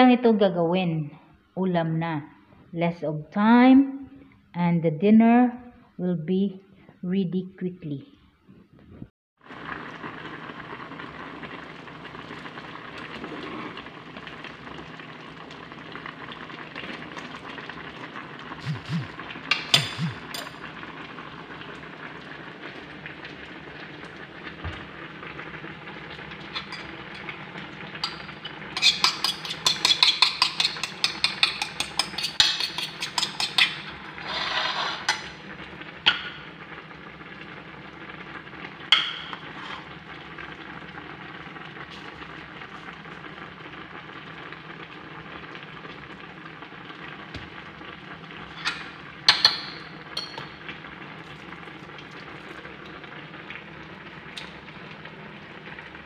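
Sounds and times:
pot of pasta boiling: 9.4 - 56.0
fork beating eggs on a plate: 28.8 - 33.9.

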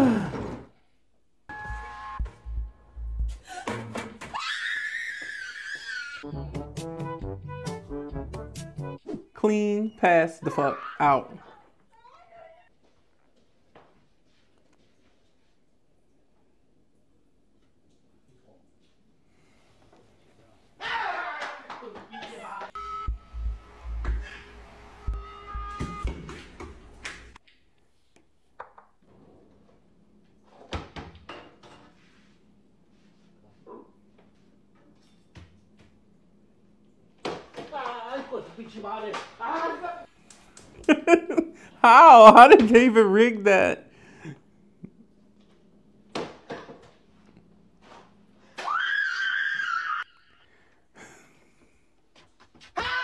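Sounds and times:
woman screaming: 4.3 - 6.2, 10.4 - 11.4, 41.8 - 42.6, 48.6 - 50.2, 52.8 - 53.0.

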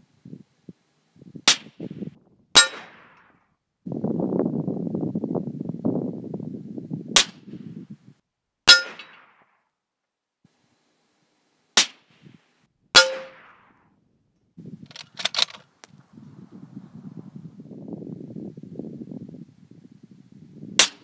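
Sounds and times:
bullet clanging on steel target: 14.9 - 16.0
rifle handling clicks: 14.9 - 16.0.

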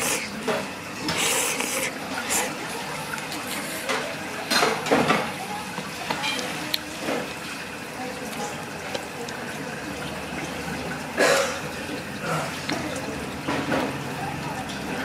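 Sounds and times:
water running in kitchen: 0.0 - 15.0
dishes clinking: 3.8 - 7.3.

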